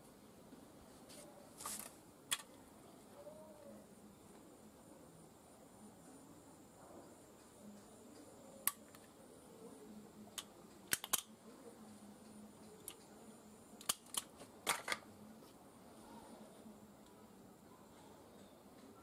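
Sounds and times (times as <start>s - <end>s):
fibre cleaver clicking and snapping: 10.4s - 11.3s, 13.8s - 15.0s.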